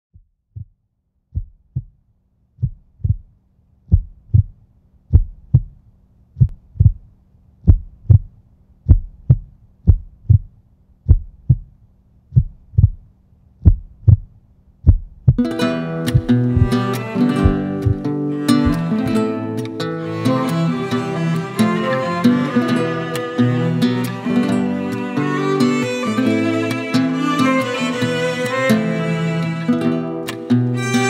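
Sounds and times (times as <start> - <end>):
heartbeat thumps: 0.1 - 2.0, 2.6 - 3.3, 3.9 - 5.8, 6.4 - 15.5, 16.1 - 19.2.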